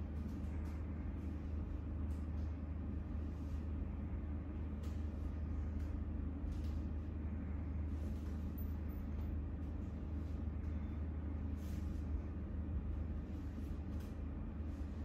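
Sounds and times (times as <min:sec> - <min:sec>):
low room hum: 0:00.0 - 0:15.0
soft rustles of blanket: 0:07.8 - 0:15.0.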